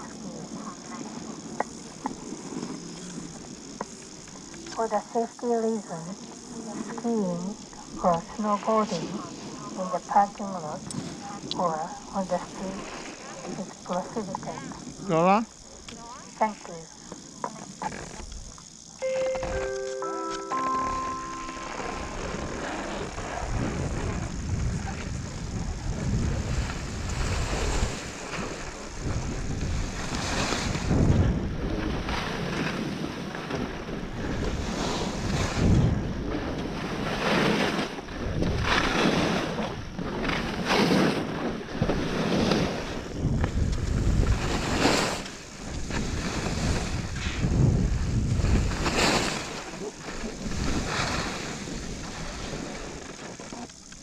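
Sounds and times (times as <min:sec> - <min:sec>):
skis scraping over snow: 0:02.1 - 0:04.1, 0:19.0 - 0:54.0
wind buffeting microphone: 0:21.9 - 0:53.2.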